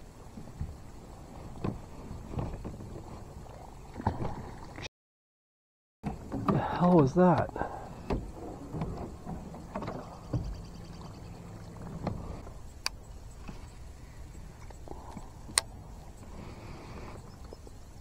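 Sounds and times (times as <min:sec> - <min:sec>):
low steady hum: 0:06.1 - 0:18.0.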